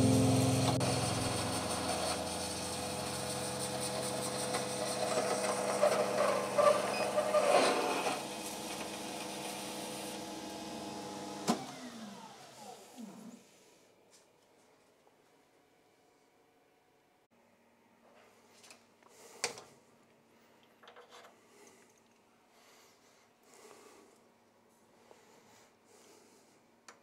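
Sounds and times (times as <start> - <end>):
spindle motor winding down: 0.0 - 9.0
metal lathe cutting: 0.0 - 10.6.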